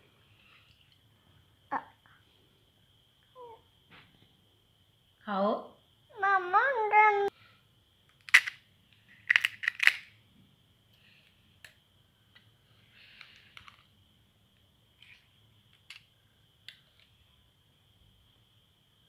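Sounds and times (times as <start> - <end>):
crisp shells cracking: 8.2 - 8.6, 9.2 - 10.1.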